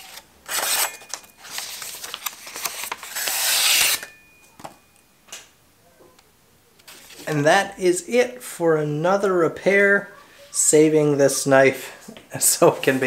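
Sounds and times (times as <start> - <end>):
cleaver slicing paper: 0.0 - 4.1.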